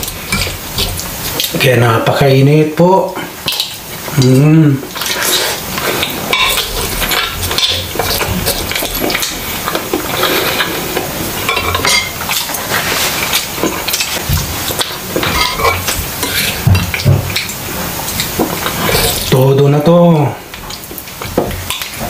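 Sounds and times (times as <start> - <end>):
chewing: 0.0 - 1.6, 3.4 - 19.3
cutlery scraping ceramic plates: 6.0 - 14.2, 14.8 - 17.5.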